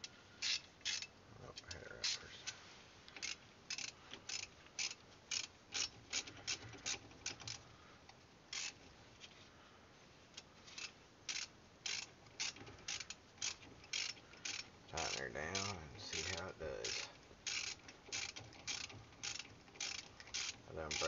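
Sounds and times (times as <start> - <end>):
socket ratchet clicking: 0.4 - 1.1, 3.1 - 7.6, 8.5 - 8.8, 10.8 - 21.0.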